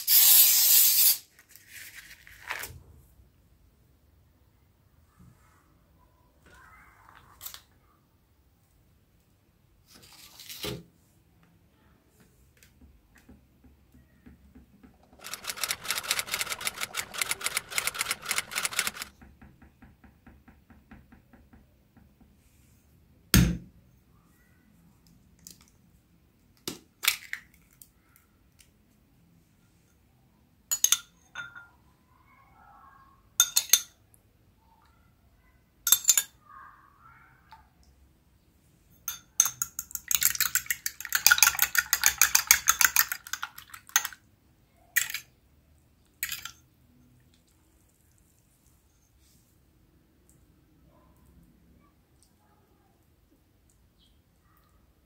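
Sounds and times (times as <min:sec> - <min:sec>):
milk pouring: 0:15.0 - 0:19.1
clinks on glass: 0:30.7 - 0:31.7, 0:33.4 - 0:34.0.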